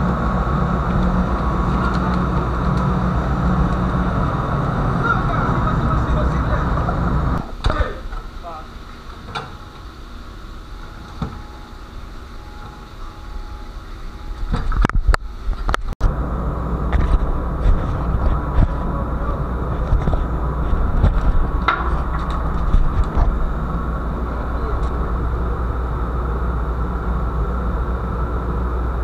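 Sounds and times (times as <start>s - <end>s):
wind buffeting microphone: 14.4s - 29.0s.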